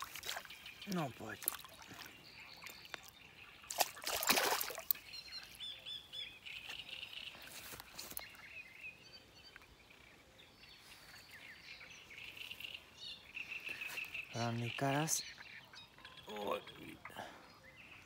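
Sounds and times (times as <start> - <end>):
water splash: 0.0 - 0.6, 3.6 - 5.0
small birds chirping: 0.0 - 18.0.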